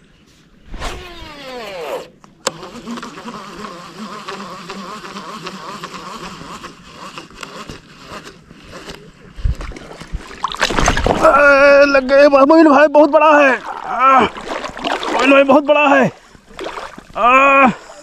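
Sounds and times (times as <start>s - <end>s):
fishing reel spool whining: 1.0s - 9.0s
reel cranking whir: 1.0s - 9.0s.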